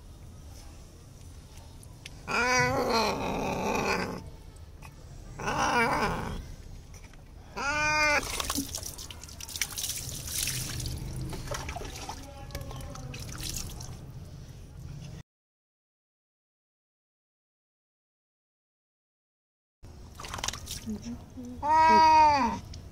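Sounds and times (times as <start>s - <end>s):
cat yowling: 2.2s - 4.2s, 5.4s - 6.4s, 7.5s - 8.5s, 21.6s - 22.6s.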